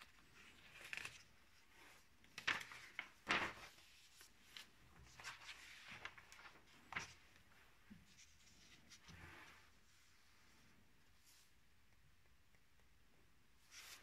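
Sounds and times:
paper pages rustling: 0:00.0 - 0:09.6.

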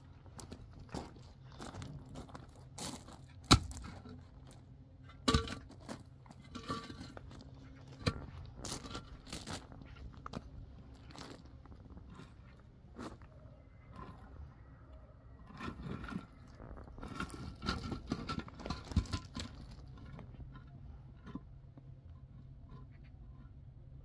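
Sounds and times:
low steady hum: 0:00.0 - 0:24.0
objects knocking and scraping: 0:03.5 - 0:12.6, 0:15.5 - 0:23.5.

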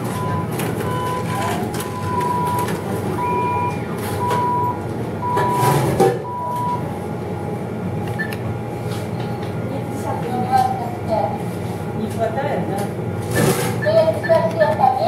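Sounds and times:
atm beeping: 0:00.0 - 0:07.0, 0:08.1 - 0:08.5.

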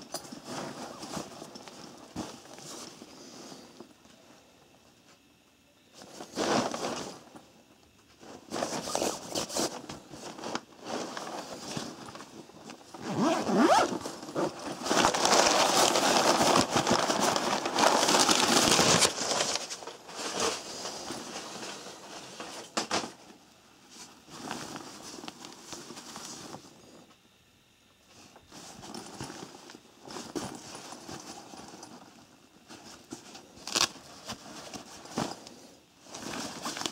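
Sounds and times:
fabric rustling and scraping: 0:00.0 - 0:03.8, 0:06.0 - 0:07.5, 0:08.1 - 0:27.0, 0:28.1 - 0:36.9
zippers being pulled: 0:13.0 - 0:14.5.

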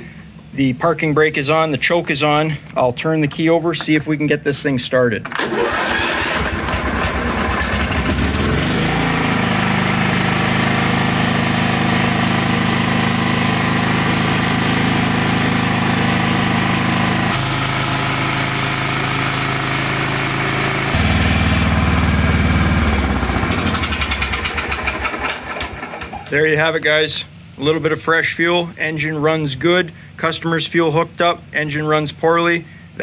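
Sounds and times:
riding mower engine running: 0:05.3 - 0:26.9.

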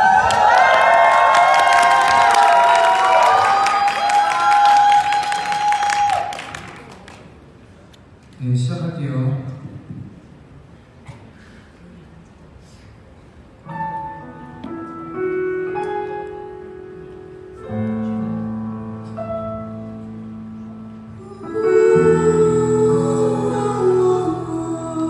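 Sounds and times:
piano chords: 0:13.6 - 0:25.0.

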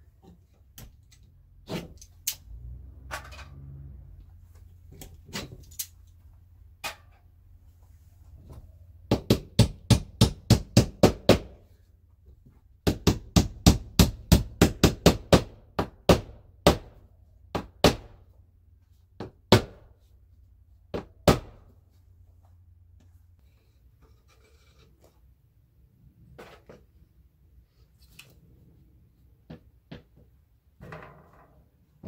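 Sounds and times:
hammer driving nail into siding: 0:09.1 - 0:11.6, 0:12.8 - 0:18.2, 0:19.2 - 0:19.9, 0:21.0 - 0:21.6.

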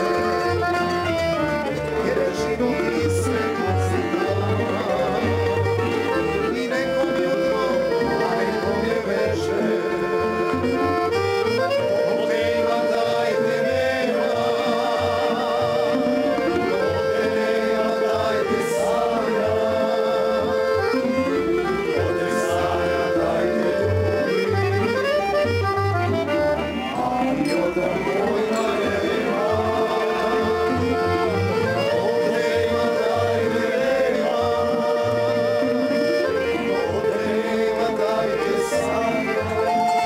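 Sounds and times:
men singing together: 0:00.0 - 0:25.2, 0:26.8 - 0:40.0
accordion: 0:00.0 - 0:40.0
double bass: 0:00.0 - 0:40.0
plucked tamburas: 0:14.4 - 0:17.6.

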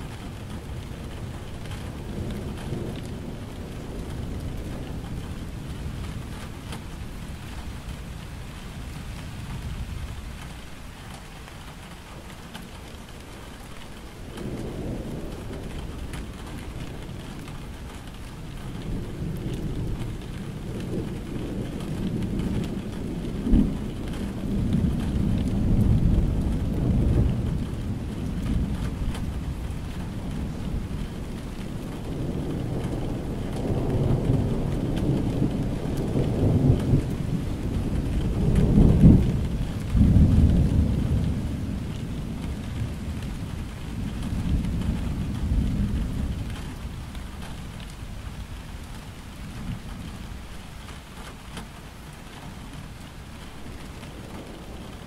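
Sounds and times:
steady rain: 0:00.0 - 0:55.0
rolling thunder: 0:14.2 - 0:50.4, 0:53.4 - 0:55.0.

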